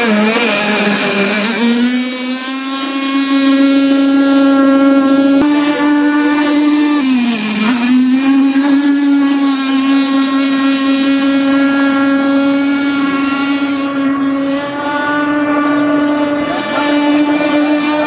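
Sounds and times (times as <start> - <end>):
model boat engine buzzing: 0.0 - 18.0.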